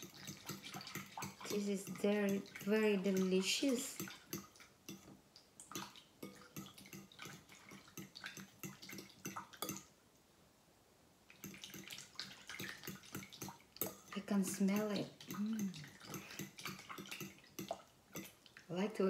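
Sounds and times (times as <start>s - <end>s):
wet sloshing in a bowl: 0.0s - 5.0s, 5.6s - 9.9s, 11.3s - 18.8s
spoon clicking on glass bowl: 8.0s - 9.9s.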